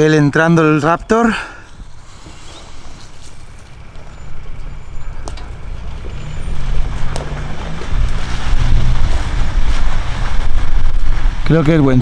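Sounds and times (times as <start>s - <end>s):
pickup truck engine driving: 0.0s - 12.0s.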